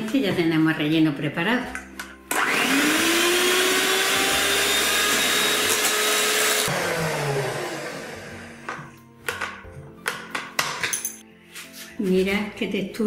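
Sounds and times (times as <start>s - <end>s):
electric hand mixer whining: 2.3s - 9.0s.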